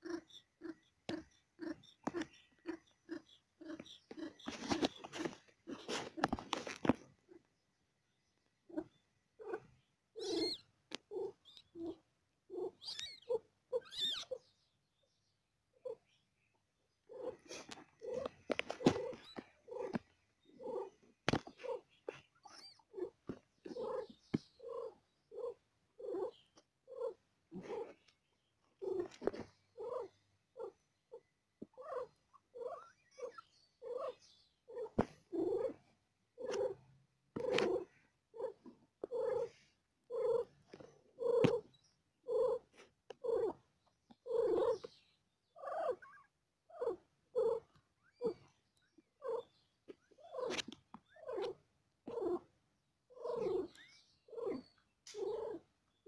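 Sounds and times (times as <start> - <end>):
cat purring: 17.0 - 28.0, 28.8 - 31.2, 34.7 - 36.8, 37.4 - 41.7, 42.3 - 43.6, 44.2 - 44.9, 46.7 - 47.6, 51.2 - 52.4, 53.2 - 55.6.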